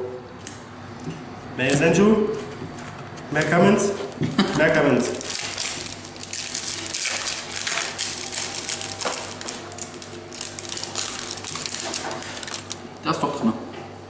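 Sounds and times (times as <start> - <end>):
cards clicking and wrappers crinkling: 4.8 - 12.9.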